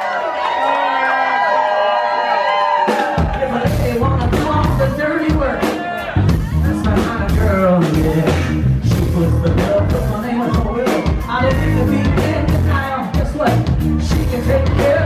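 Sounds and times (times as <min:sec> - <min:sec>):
rock band playing: 0:02.5 - 0:15.0
man singing: 0:03.2 - 0:15.0.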